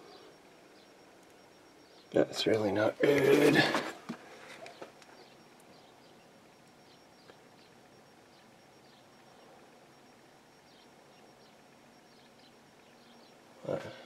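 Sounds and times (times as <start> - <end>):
faint high chirps: 0.0 - 3.8, 4.5 - 14.0.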